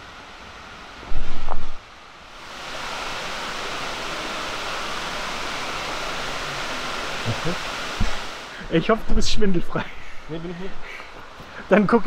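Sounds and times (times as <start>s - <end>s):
stream water rushing: 0.0s - 12.0s.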